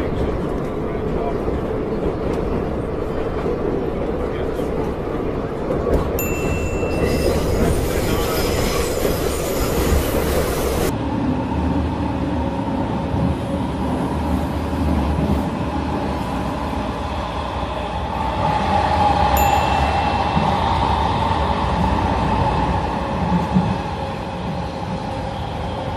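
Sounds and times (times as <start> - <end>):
train wheels rumbling on rails: 0.0 - 25.9
whining tone from train: 6.2 - 10.9, 17.1 - 25.9.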